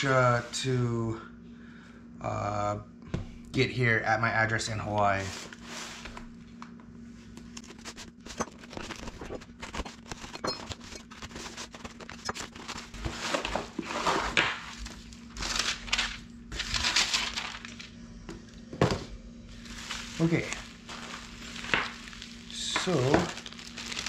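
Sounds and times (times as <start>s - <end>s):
tearing cardboard and tape: 7.5s - 17.9s, 19.6s - 24.0s
paper and bubble-wrap crinkling: 7.6s - 17.9s, 19.5s - 24.0s.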